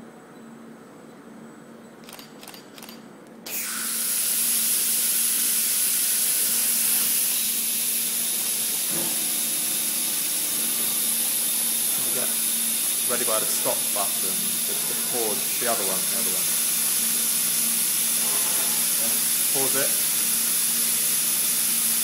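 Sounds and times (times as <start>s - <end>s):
short clicks: 2.0s - 3.0s
compressed air hissing: 3.5s - 22.0s
steady low hum: 4.7s - 20.2s.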